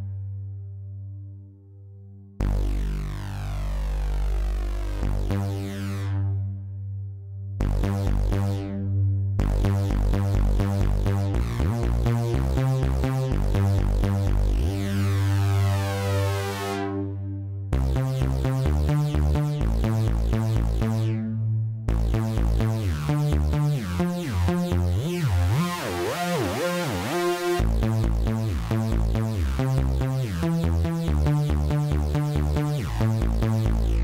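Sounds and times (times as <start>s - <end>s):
synthesizer bass line: 2.4s - 34.0s.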